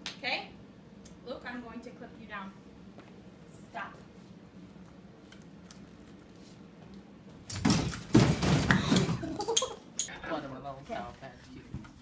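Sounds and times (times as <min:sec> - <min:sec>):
person falling to the floor: 0:07.5 - 0:09.4.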